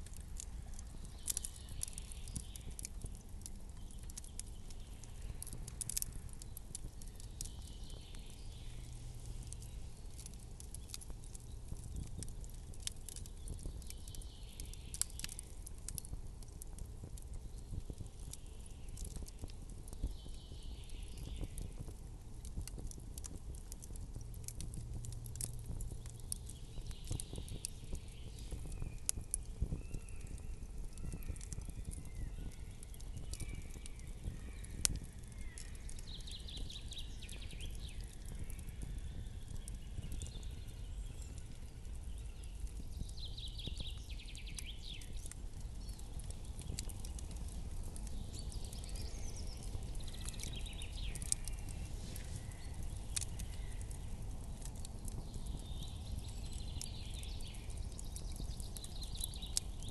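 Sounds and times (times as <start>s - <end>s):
campfire crackling and popping: 0.0s - 59.9s
soft hiss: 40.9s - 54.8s.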